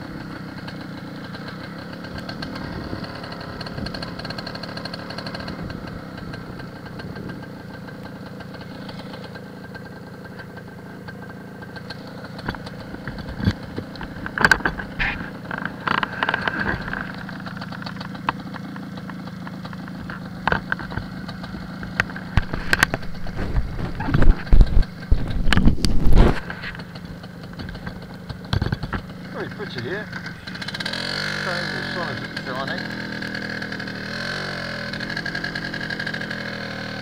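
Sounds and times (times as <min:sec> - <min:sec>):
two-stroke motorcycle engine: 0:00.0 - 0:37.0
knocks and rattles: 0:12.3 - 0:30.8
loud thumps: 0:22.2 - 0:26.8.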